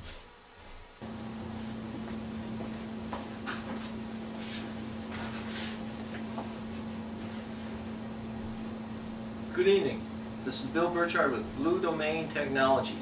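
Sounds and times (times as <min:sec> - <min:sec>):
faint rustles and soft knocks: 0:00.0 - 0:07.8
low electrical hum: 0:00.0 - 0:13.0.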